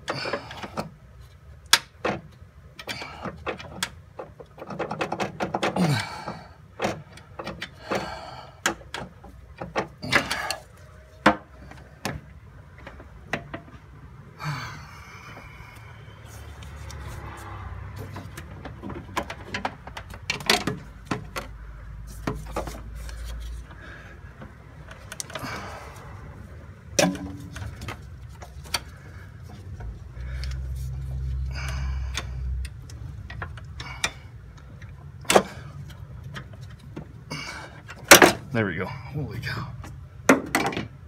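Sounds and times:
hands clicking on fittings: 0:24.3 - 0:25.7, 0:27.0 - 0:37.1.

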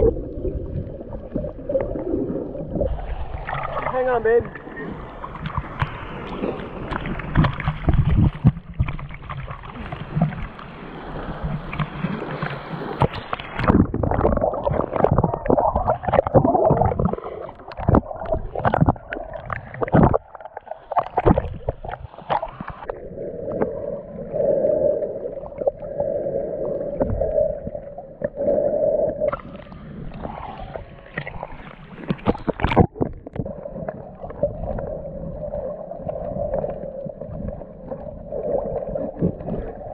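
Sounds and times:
sea water sloshing and splashing: 0:00.0 - 0:39.9.

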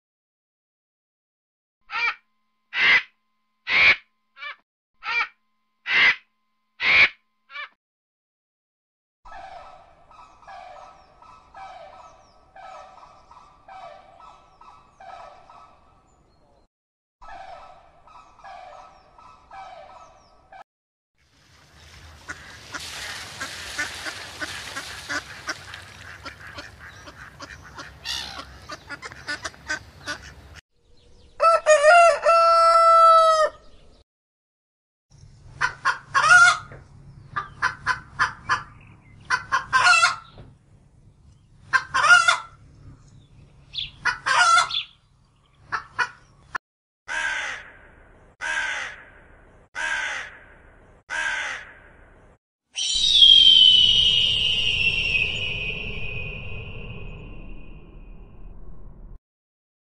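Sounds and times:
duck splashing in water: 0:21.3 - 0:29.2
hens clucking: 0:22.0 - 0:30.5, 0:43.8 - 0:44.8
crow cawing: 0:22.2 - 0:30.3, 0:47.1 - 0:47.8, 0:48.4 - 0:49.2, 0:49.8 - 0:51.9
rooster crowing: 0:31.4 - 0:33.6.

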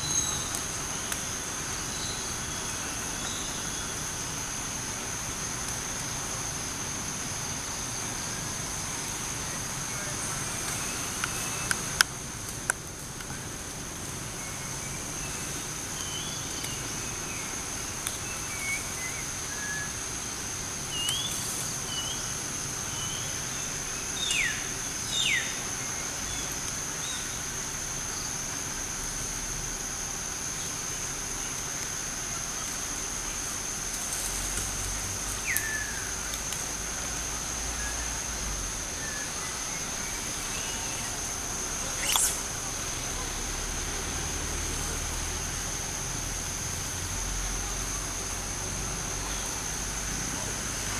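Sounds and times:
high-pitched insect drone: 0:33.2 - 0:48.5
falling whistled bird calls: 0:41.9 - 0:42.5.

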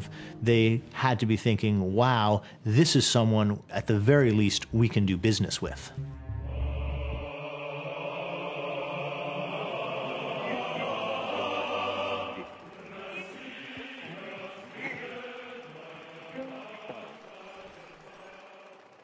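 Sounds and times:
choir-like chanting music: 0:06.0 - 0:19.0.

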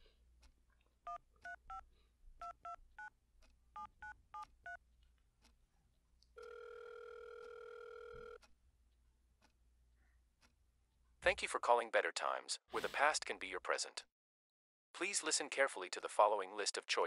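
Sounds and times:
phone ringback tone: 0:06.4 - 0:08.4.

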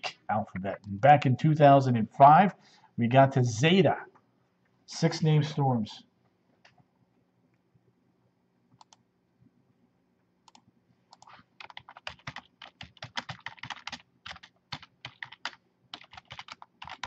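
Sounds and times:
typing on computer keyboard: 0:10.5 - 0:17.0.

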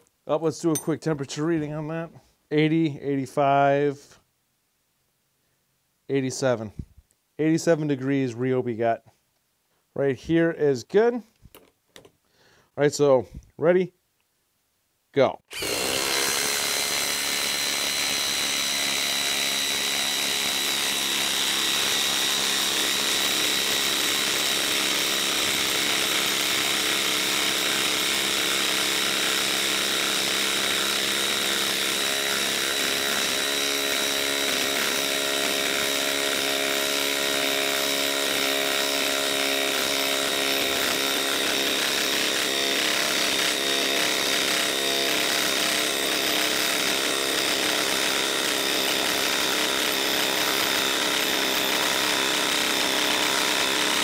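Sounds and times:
impact driver hammering: 0:15.5 - 0:54.0.

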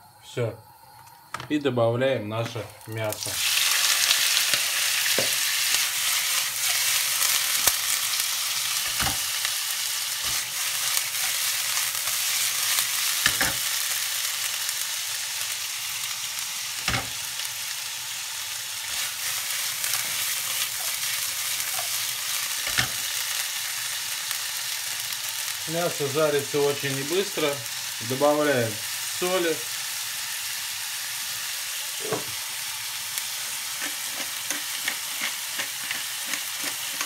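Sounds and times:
steak sizzling in oil: 0:02.5 - 0:37.0
meat knocking in pan: 0:05.1 - 0:05.4, 0:08.8 - 0:09.3.

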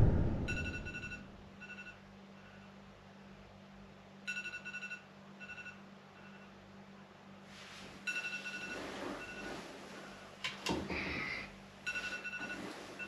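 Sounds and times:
electronic alarm beeping: 0:00.0 - 0:02.0
low steady hum: 0:00.0 - 0:13.0.

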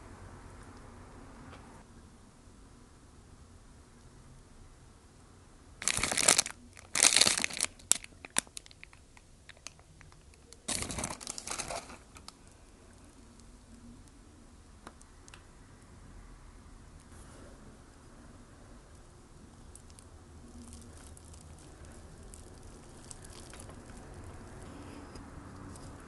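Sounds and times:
paper wrapper crinkling and tearing: 0:05.8 - 0:12.4, 0:19.7 - 0:24.6.

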